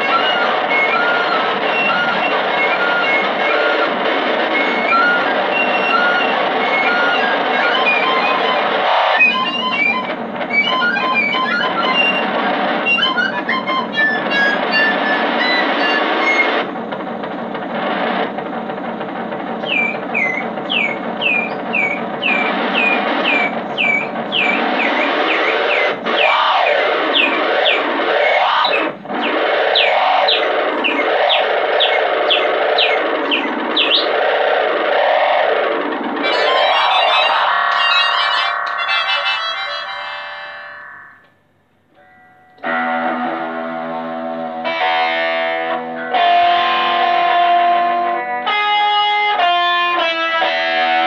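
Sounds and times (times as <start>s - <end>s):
high chirping glides: 0.0s - 16.6s, 19.6s - 35.4s, 36.2s - 41.3s
distorted electric guitar drone: 0.0s - 51.0s.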